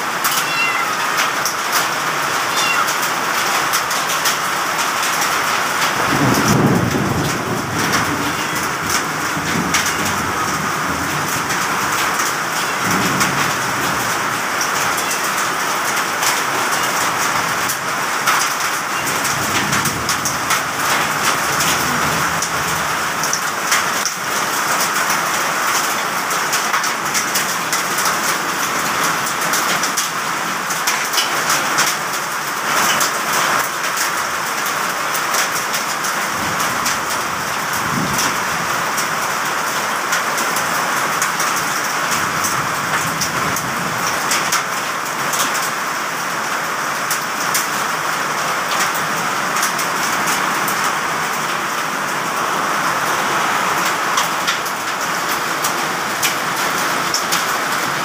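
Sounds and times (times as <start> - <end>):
heavy rain pouring: 0.0 - 58.0
raindrops striking hard surfaces: 0.0 - 58.0.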